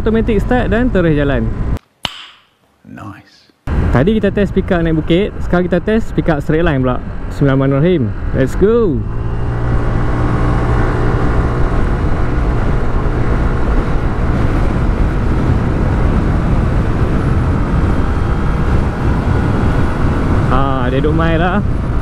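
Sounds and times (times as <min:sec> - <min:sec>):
road and wind noise: 0:00.0 - 0:01.8, 0:03.7 - 0:22.0
scooter engine accelerating: 0:06.7 - 0:22.0.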